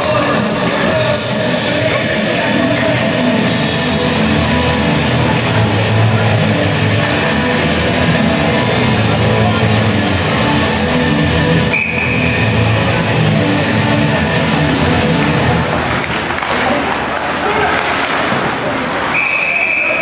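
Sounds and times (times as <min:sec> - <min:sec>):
loud rock music over loudspeakers: 0:00.0 - 0:15.7.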